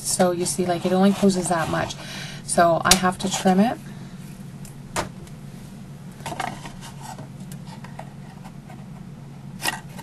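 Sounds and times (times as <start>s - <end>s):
steady low hum: 0.0s - 10.0s.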